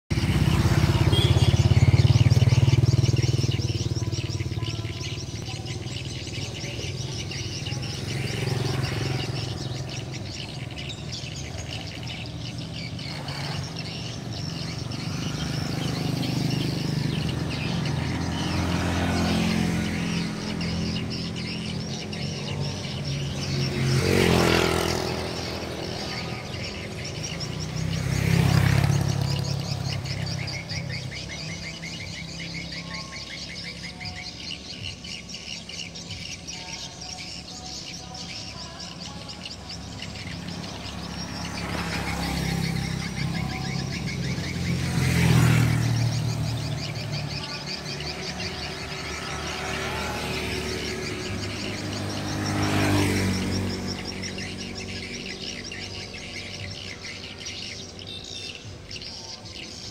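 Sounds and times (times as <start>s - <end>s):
passing vehicles: 0.0s - 59.9s
swiftlets chirping and trilling: 0.1s - 59.9s
swiftlet calls from speakers: 0.2s - 18.6s.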